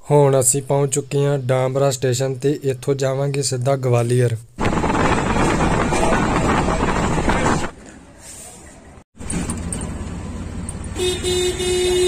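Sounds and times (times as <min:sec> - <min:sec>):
street traffic: 0:04.6 - 0:12.0
low engine hum: 0:09.2 - 0:12.0.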